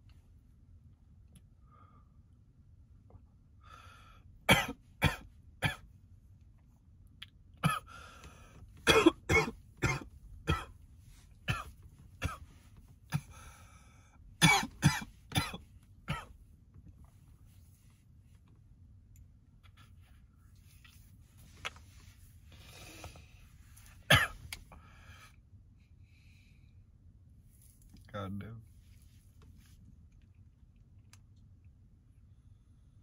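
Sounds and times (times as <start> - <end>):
man coughing hard: 4.5 - 5.8, 7.6 - 8.0, 8.8 - 10.8, 11.5 - 12.5, 13.1 - 13.5, 14.4 - 16.4, 24.1 - 24.4.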